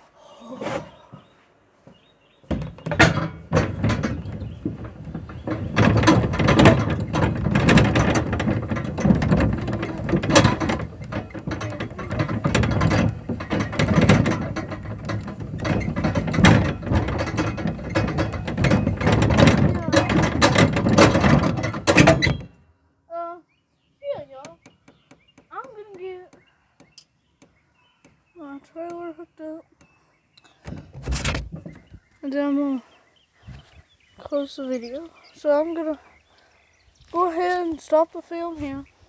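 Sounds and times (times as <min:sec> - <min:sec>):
trailer metal clanking and rattling: 0:02.5 - 0:22.6.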